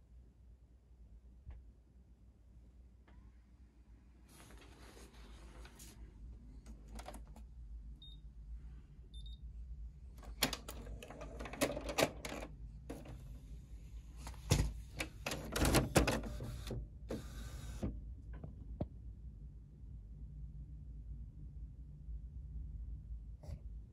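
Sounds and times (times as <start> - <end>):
printer plastic clicks and clatter: 10.2 - 13.2, 14.3 - 17.9.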